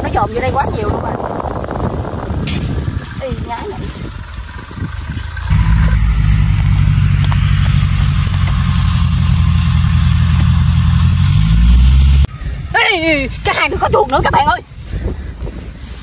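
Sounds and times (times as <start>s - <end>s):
engine running with low hum: 0.0s - 12.7s.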